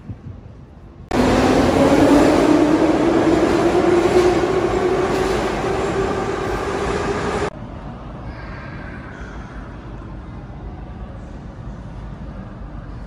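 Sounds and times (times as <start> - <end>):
metro train running on rails: 0.2 - 8.2.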